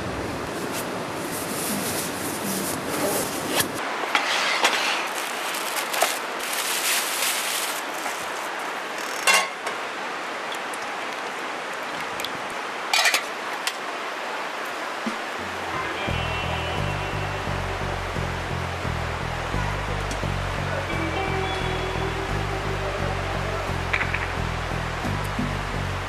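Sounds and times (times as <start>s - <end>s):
outdoor noise: 0.0s - 26.0s
cloth rustling: 0.5s - 8.8s
plastic bag crinkling: 4.8s - 8.8s.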